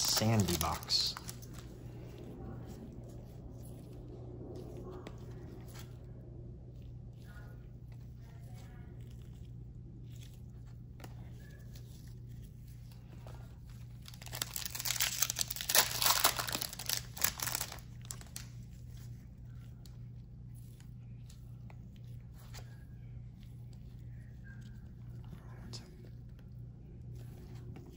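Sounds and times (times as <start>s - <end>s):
foil wrapper tearing: 0.0s - 1.6s, 13.8s - 18.5s
low hum: 0.0s - 27.9s.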